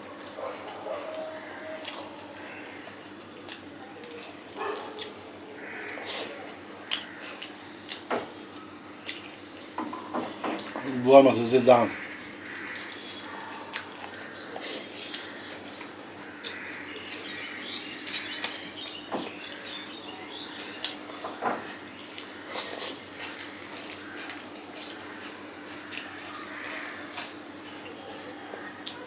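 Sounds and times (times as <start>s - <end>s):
wet chewing and mouth smacks: 0.2s - 2.2s, 3.0s - 5.2s, 6.0s - 9.8s, 12.4s - 16.6s, 20.8s - 28.0s, 28.8s - 29.0s.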